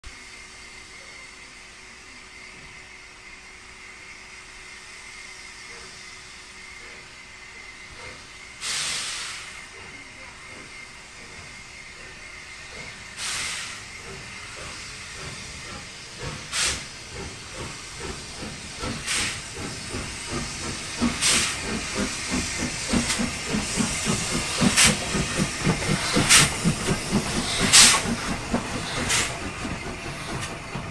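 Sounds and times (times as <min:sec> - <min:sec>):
steam hissing bursts: 0:04.0 - 0:30.9
steam locomotive rhythmic beat: 0:07.9 - 0:30.9.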